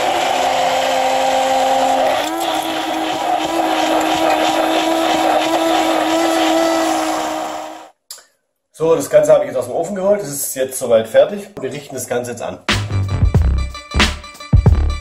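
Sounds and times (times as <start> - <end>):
stick blender motor whine: 0.0 - 7.9.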